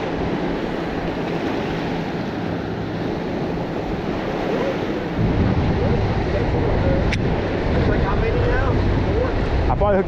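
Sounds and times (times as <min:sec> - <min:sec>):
wind noise on microphone: 0:02.4 - 0:10.0.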